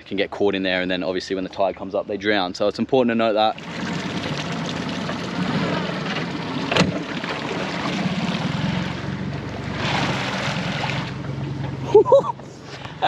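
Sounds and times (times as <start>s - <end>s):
water rushing: 3.4s - 13.0s
outboard motor running: 3.6s - 13.0s.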